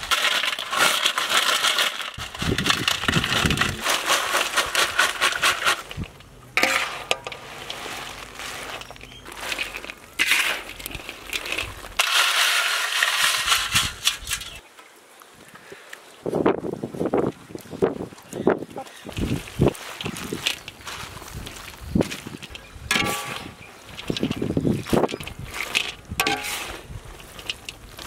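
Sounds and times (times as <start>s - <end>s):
potatoes clattering in a wok: 0.0s - 14.6s, 22.3s - 28.0s.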